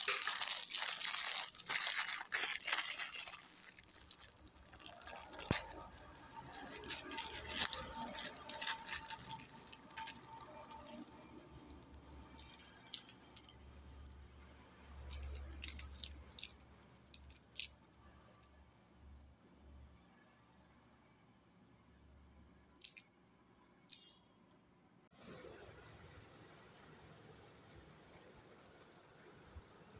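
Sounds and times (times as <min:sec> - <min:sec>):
wrapper crinkling and rustling: 0:00.0 - 0:14.1, 0:15.1 - 0:17.7.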